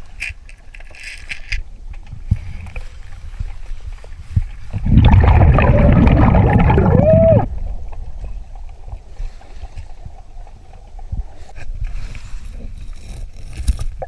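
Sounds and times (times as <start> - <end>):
quiet underwater background: 0.0 - 14.0
rush of exhaled bubbles: 4.6 - 7.9.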